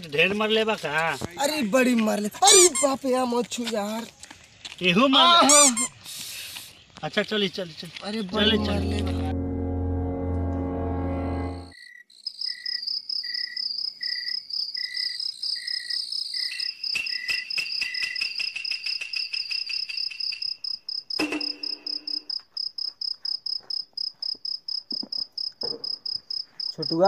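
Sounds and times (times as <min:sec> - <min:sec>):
music: 0:08.4 - 0:11.7
short low hum: 0:08.4 - 0:11.7
crickets chirping: 0:11.8 - 0:27.0.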